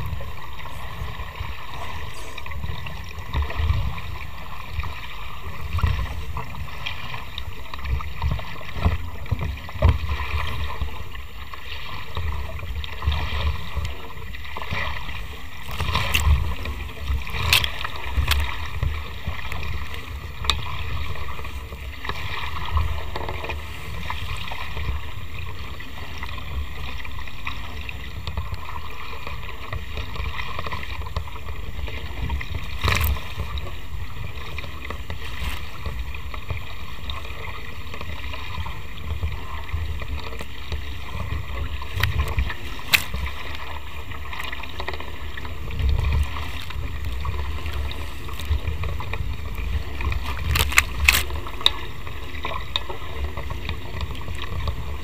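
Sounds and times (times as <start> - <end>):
wind buffeting microphone: 0.0 - 11.2
water rushing past hulls: 0.0 - 55.0.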